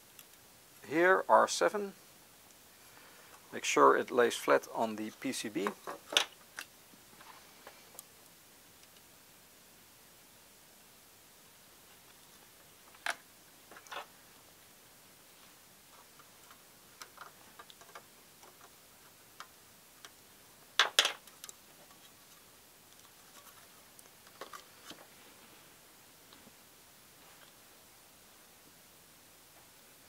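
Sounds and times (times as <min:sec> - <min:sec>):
small clicks and taps: 0:16.0 - 0:18.8, 0:19.4 - 0:20.2, 0:20.8 - 0:22.1.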